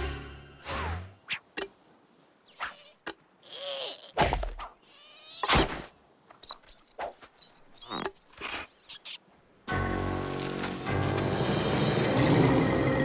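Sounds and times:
squeaky comic noises: 2.5 - 4.2.

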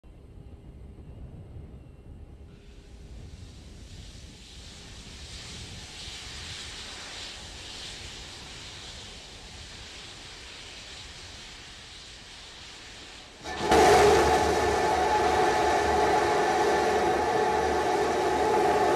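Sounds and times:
venting vapour hiss: 3.2 - 18.9
rocket engines rumbling: 13.3 - 18.9.

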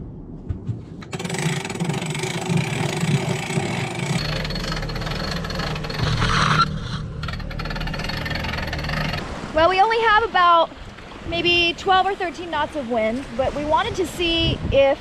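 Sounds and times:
boat noise: 0.8 - 15.0
winch cranking rattle and clicking: 1.0 - 9.5.

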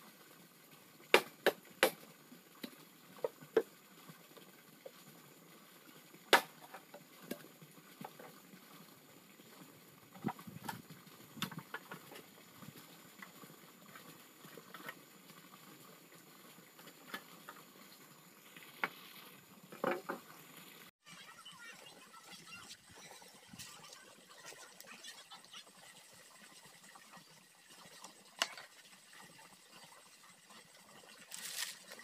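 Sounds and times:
knocks and taps on bamboo: 1.1 - 2.0.

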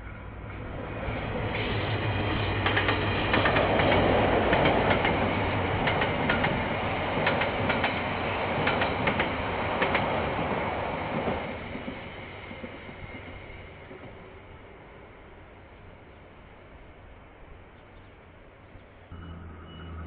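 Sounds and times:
diesel locomotive drone: 0.0 - 20.0
train carriages rumbling past: 0.0 - 20.0
wheels clicking over rail joints: 1.9 - 13.2.

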